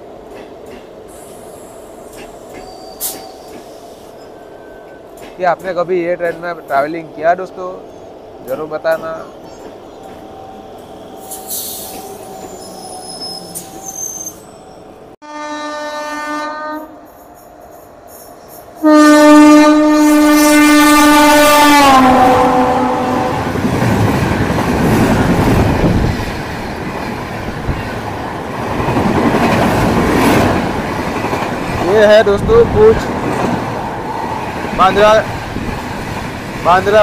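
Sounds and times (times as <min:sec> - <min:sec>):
train coaches rushing by: 0:00.0 - 0:15.1, 0:20.3 - 0:37.0
train horn blasts: 0:15.2 - 0:17.1, 0:18.8 - 0:23.5.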